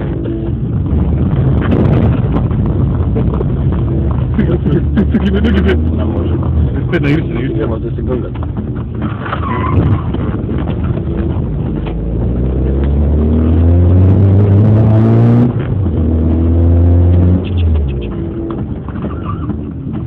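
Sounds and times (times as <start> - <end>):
car engine accelerating: 0.0 - 20.0.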